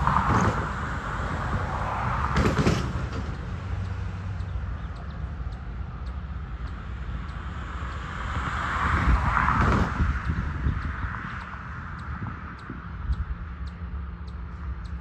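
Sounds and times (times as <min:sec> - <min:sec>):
diesel locomotive rumbling: 0:00.0 - 0:15.0
faint ticks: 0:03.2 - 0:08.4, 0:10.2 - 0:15.0.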